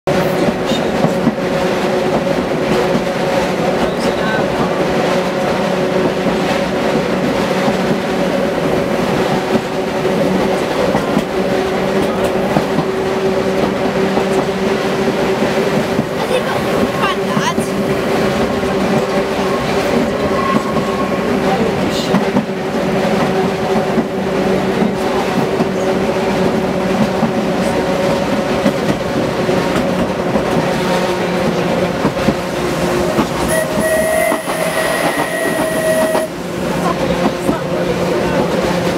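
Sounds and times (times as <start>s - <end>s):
electric tram hum: 0.1s - 38.9s
tram wheels rumbling on rails: 0.1s - 38.9s
passing tram higher tone: 30.2s - 38.9s.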